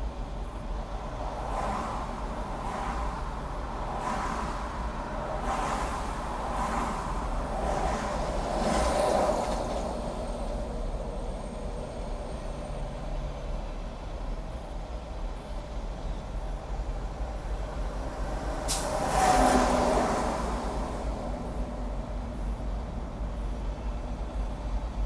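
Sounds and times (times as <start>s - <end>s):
low rumble of traffic: 0.0s - 25.0s
vehicles swishing past: 0.9s - 10.9s, 17.6s - 22.2s.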